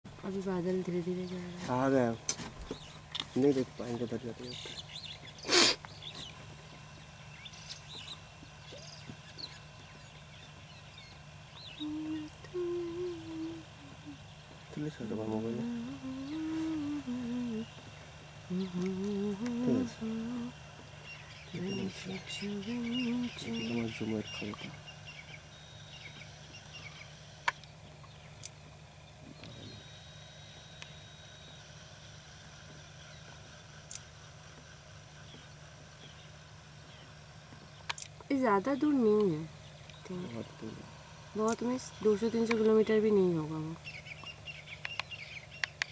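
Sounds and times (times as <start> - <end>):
birds chirping faintly: 0.1 - 45.9
steady low hum: 0.1 - 45.9
held low notes: 6.3 - 30.0
small sharp clicks: 33.8 - 34.1, 37.8 - 38.3, 41.5 - 41.7, 43.8 - 45.9.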